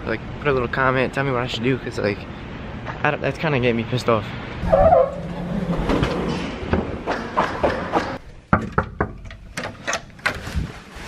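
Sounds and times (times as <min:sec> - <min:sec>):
handling and rustling noise: 0:09.5 - 0:11.0.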